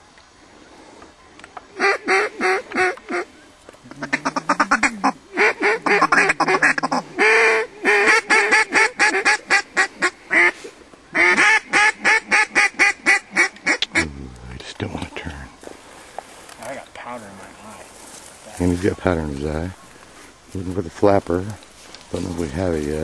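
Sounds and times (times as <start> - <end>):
duck call quacks: 1.8 - 3.2, 3.9 - 14.1.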